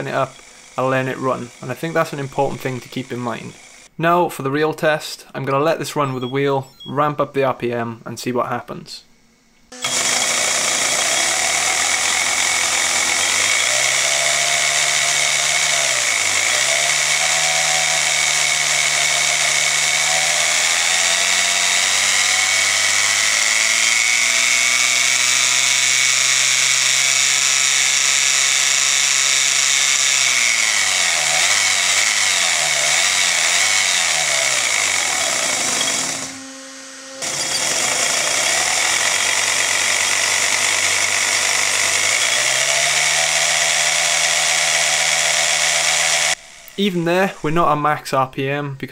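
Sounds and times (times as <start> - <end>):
electric motor whirring whine: 0.0 - 3.9, 9.7 - 47.6.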